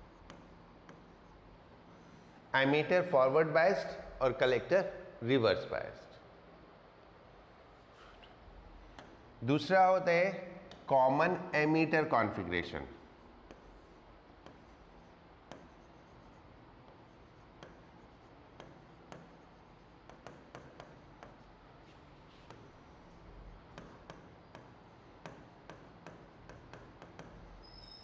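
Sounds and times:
pen writing on a board: 0:00.0 - 0:01.4, 0:13.0 - 0:28.0.

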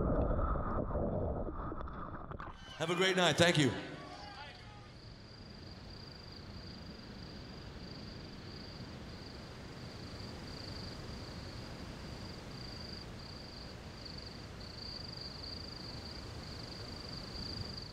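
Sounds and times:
night insects trilling: 0:04.8 - 0:17.9.

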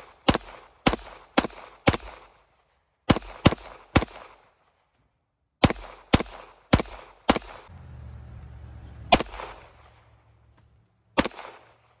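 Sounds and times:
gunshots with short echo: 0:05.6 - 0:07.7, 0:09.1 - 0:10.2, 0:11.0 - 0:12.0.

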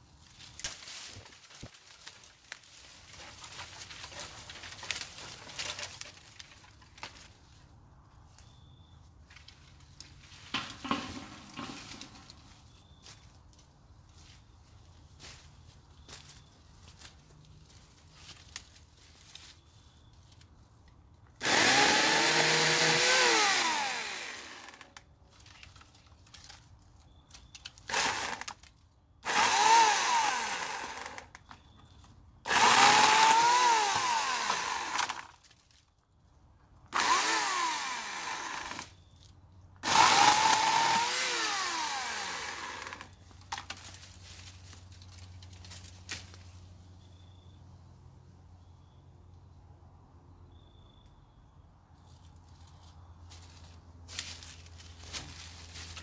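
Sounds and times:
electric chainsaw running: 0:21.4 - 0:24.9, 0:27.9 - 0:28.5, 0:29.2 - 0:31.3, 0:32.5 - 0:35.3, 0:36.9 - 0:38.9, 0:39.8 - 0:43.2.

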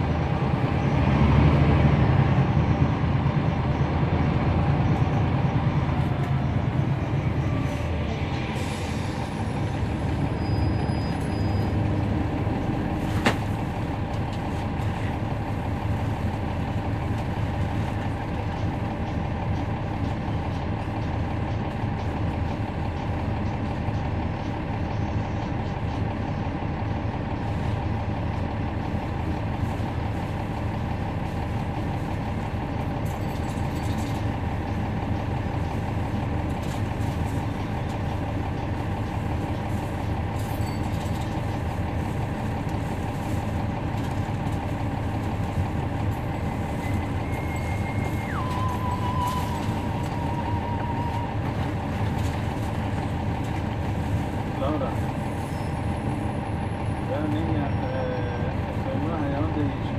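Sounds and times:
bus diesel engine running: 0:00.0 - 0:59.9.

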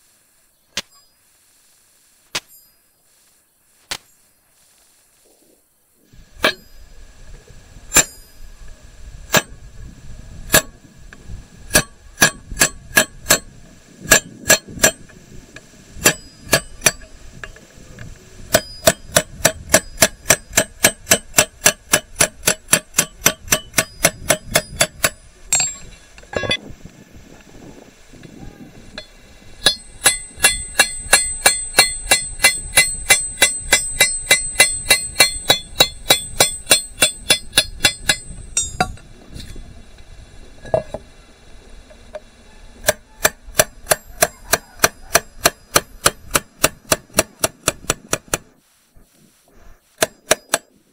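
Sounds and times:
hammer tapping chisel on metal: 0:29.0 - 0:39.0, 0:50.0 - 0:50.7.

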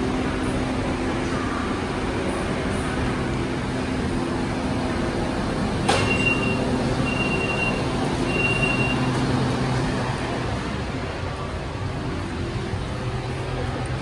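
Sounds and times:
train humming: 0:00.0 - 0:14.0
doors clunking open: 0:05.6 - 0:10.4
long high warning beeps: 0:06.0 - 0:09.2.

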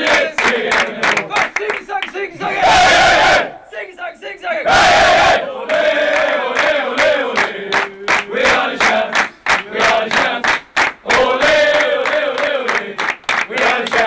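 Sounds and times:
group chanting a song: 0:00.0 - 0:01.5, 0:02.2 - 0:14.0
rhythmic clapping: 0:00.0 - 0:02.4, 0:05.6 - 0:14.0.

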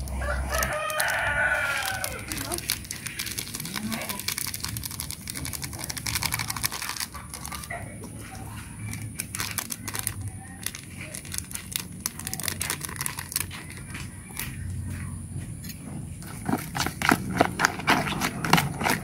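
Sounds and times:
plastic sachets crinkling: 0:00.0 - 0:14.6.

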